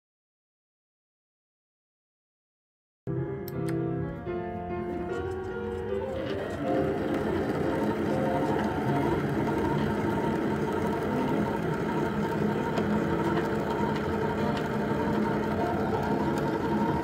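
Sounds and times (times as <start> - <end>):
metal lathe humming: 4.8 - 17.0.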